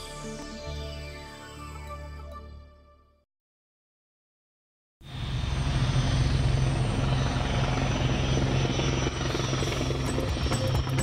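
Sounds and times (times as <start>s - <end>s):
helicopter rotor beat: 5.1s - 11.0s.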